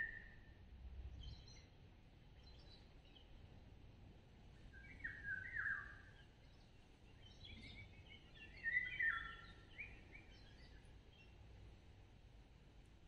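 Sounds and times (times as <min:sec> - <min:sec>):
songbird singing: 0:04.7 - 0:11.4.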